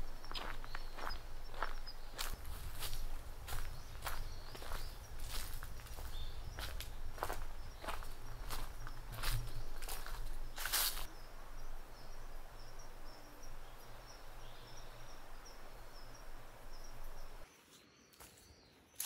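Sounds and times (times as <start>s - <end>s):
footsteps: 0.3s - 11.1s.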